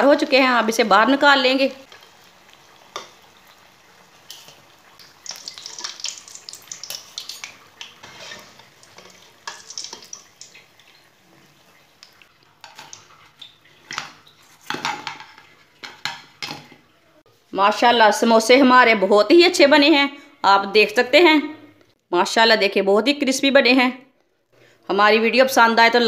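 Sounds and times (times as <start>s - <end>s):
hot oil sizzling: 0.0s - 16.6s
strainer scraping metal pan: 8.0s - 8.7s.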